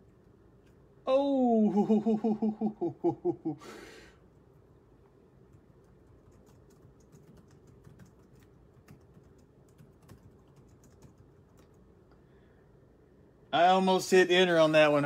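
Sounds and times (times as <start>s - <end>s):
faint keyboard typing: 5.4s - 12.2s.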